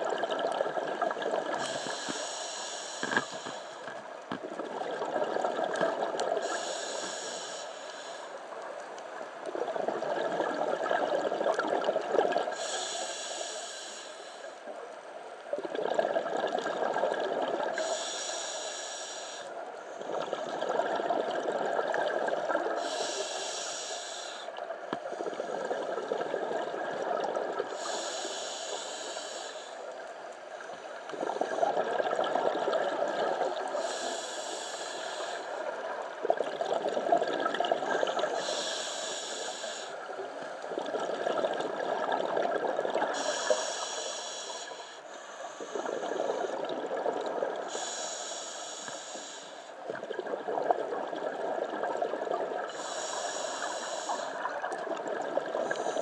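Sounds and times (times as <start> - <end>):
exhaled bubbles rumbling: 0.0 - 2.0, 4.2 - 6.5, 9.4 - 12.6, 15.5 - 17.8, 20.0 - 22.8, 25.2 - 27.7, 31.1 - 33.9, 35.6 - 38.4, 40.0 - 43.3, 45.7 - 47.7, 49.8 - 52.7, 54.3 - 56.0
regulator hissing inhale: 1.5 - 4.0, 6.4 - 8.6, 12.6 - 14.7, 17.7 - 20.0, 22.8 - 25.8, 27.6 - 30.8, 33.6 - 35.8, 38.1 - 40.7, 43.0 - 46.7, 47.6 - 49.8, 52.6 - 54.5, 55.6 - 56.0.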